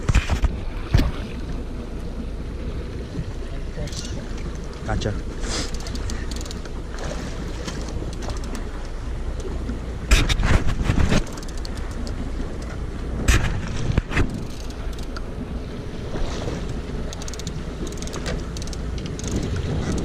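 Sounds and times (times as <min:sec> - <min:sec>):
wind noise on microphone: 0:00.0 - 0:01.4, 0:10.1 - 0:11.5, 0:12.6 - 0:20.0
boat engine rumble: 0:00.0 - 0:20.0.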